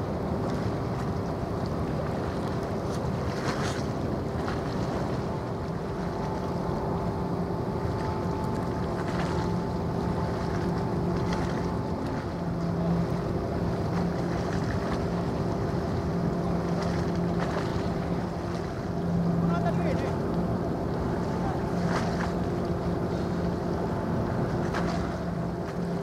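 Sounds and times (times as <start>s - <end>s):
ship machinery droning: 3.9s - 26.0s.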